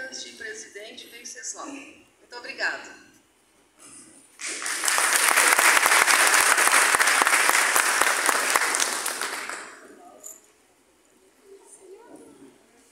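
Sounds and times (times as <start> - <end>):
audience clapping: 4.4 - 10.0.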